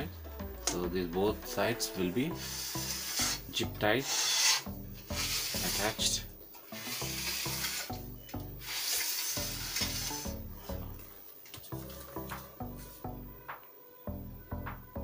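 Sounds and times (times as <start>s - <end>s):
music with bass pattern: 0.0s - 4.0s, 4.7s - 8.7s, 9.4s - 11.1s, 11.7s - 15.0s
rubbing and scraping: 2.3s - 8.0s, 8.6s - 10.4s.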